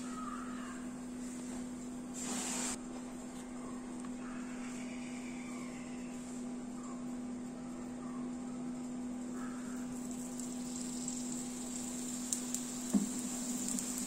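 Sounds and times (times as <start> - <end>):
brief hiss: 2.2 - 2.8.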